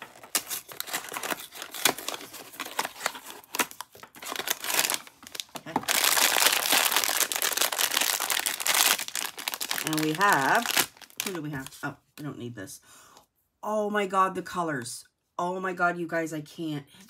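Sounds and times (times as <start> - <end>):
foil bag crinkling: 0.0 - 11.7.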